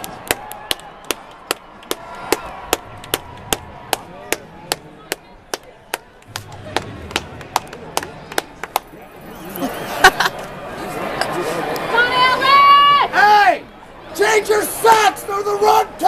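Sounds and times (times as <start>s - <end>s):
person clapping hands: 0.0s - 8.9s.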